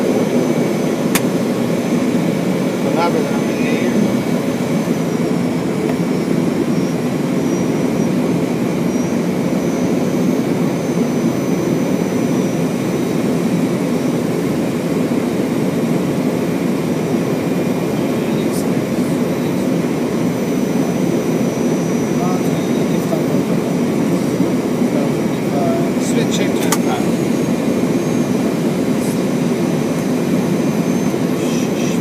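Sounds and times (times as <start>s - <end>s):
airflow and jet engine noise: 0.0s - 32.0s.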